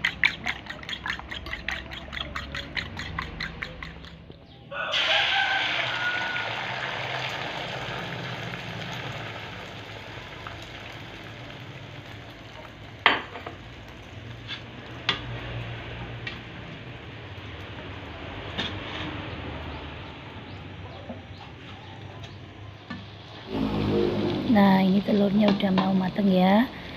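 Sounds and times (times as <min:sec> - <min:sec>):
egg sizzling in oil: 0:04.9 - 0:16.4.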